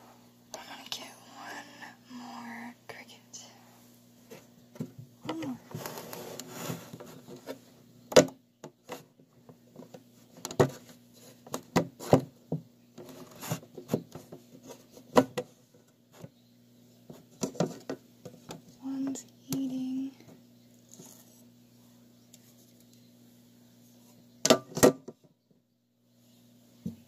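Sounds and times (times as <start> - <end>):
low steady hum: 0.0 - 27.0.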